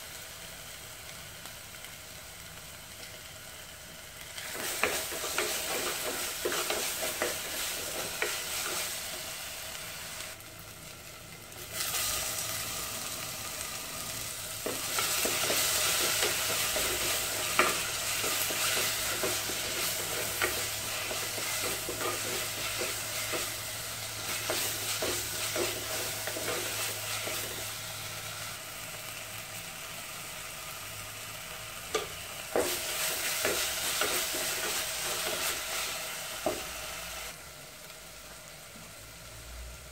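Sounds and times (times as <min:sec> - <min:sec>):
onions sizzling in a clay pot: 0:00.0 - 0:39.9.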